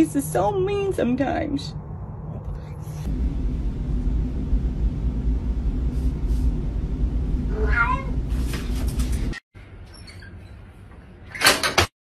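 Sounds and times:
steady low rumble: 0.0s - 9.3s
cat meowing: 7.5s - 8.2s.

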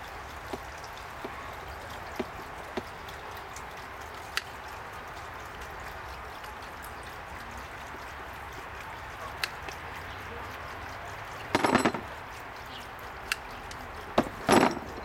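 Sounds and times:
tin snips clicking on hose: 13.2s - 13.9s.

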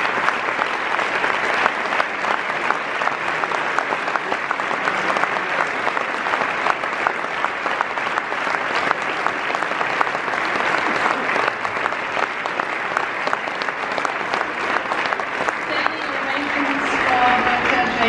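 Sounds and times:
audience clapping: 0.0s - 18.0s.

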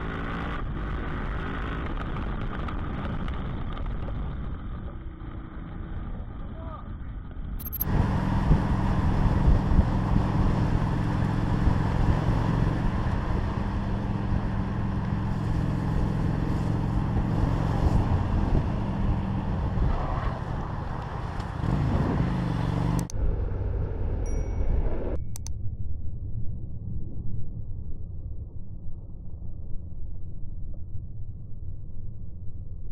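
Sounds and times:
wind and road noise: 0.0s - 32.9s
motorcycle engine running: 7.6s - 24.2s.

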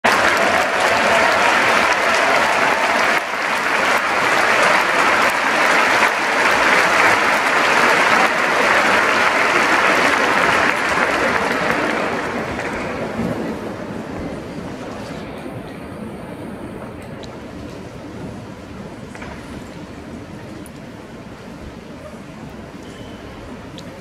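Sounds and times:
audience applauding: 0.0s - 13.9s.

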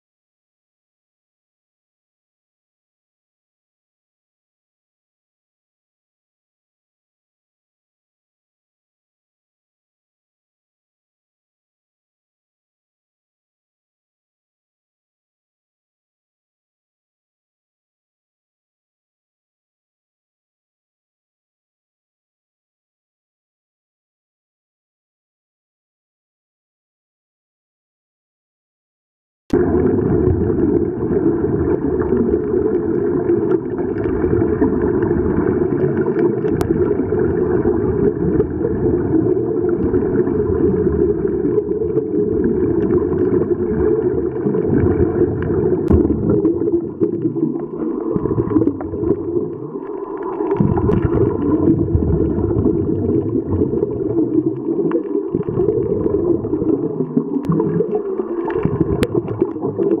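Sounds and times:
regulator bubbles: 29.5s - 60.0s
underwater rumble and gurgling: 29.5s - 60.0s.

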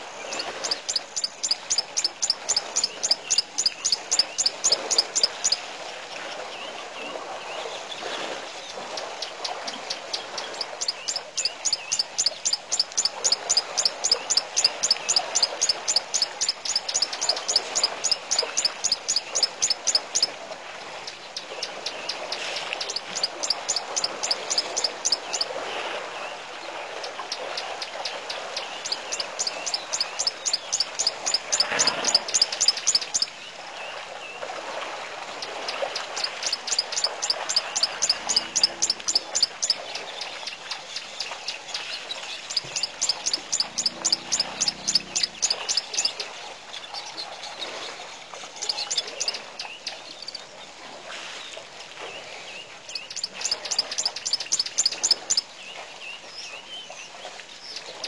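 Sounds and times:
bird chirping: 0.2s - 5.6s, 9.9s - 20.3s, 28.7s - 33.3s, 36.2s - 46.2s, 52.9s - 55.4s.

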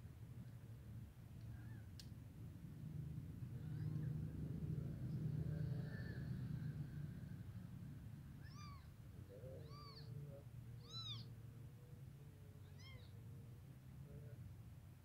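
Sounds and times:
newborn kittens mewing: 8.4s - 11.4s, 12.6s - 13.2s.

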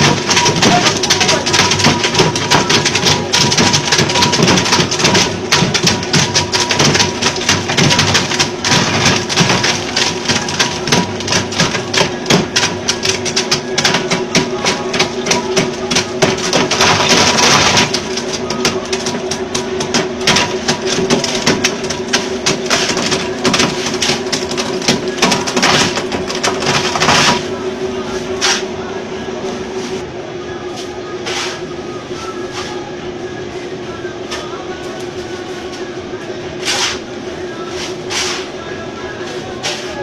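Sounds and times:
ice clattering being crushed: 0.0s - 27.5s
ice crusher motor hum: 0.0s - 27.6s.

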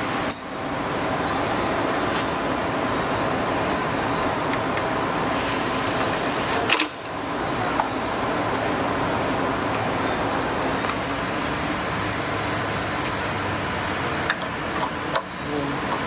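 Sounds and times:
mechanical hum: 0.0s - 16.0s.

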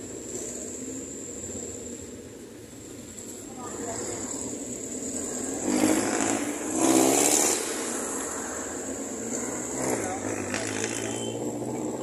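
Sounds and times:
vehicle engine passing by: 3.7s - 12.0s.

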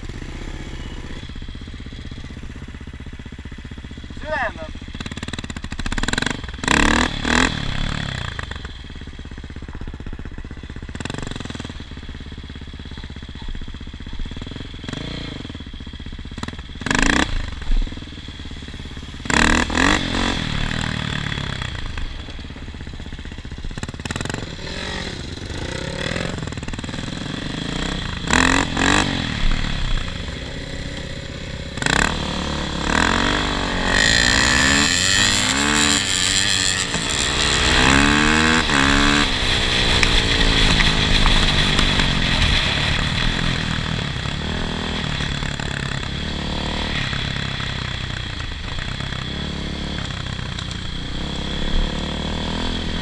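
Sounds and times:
small engine revving: 4.2s - 8.8s, 16.3s - 22.4s, 23.8s - 53.0s.

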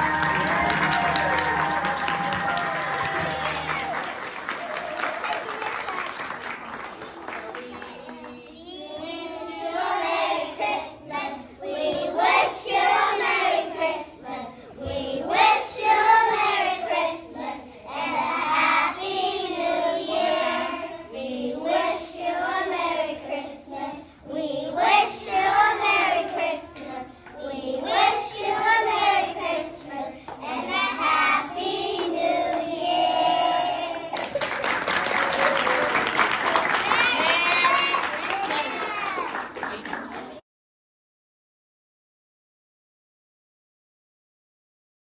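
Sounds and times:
children's choir singing: 0.0s - 4.7s, 5.4s - 34.4s.

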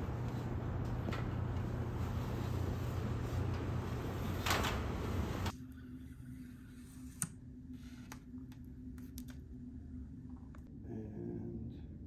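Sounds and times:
outdoor rumble and hiss: 0.0s - 5.6s.

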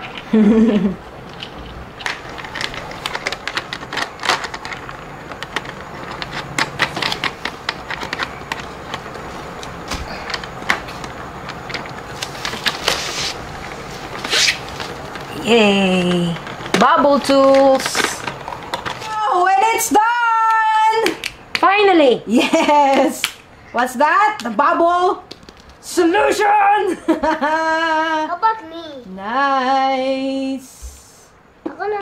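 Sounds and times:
plastic parts clicking and clattering: 1.2s - 13.0s, 16.0s - 19.1s.

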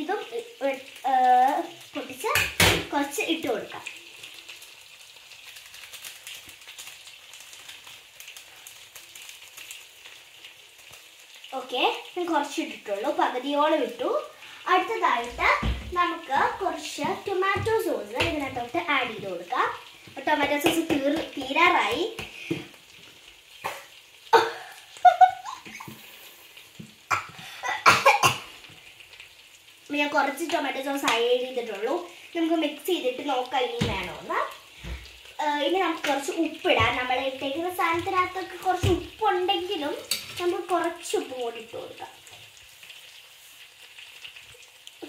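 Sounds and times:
sachet crinkling: 4.6s - 9.9s.

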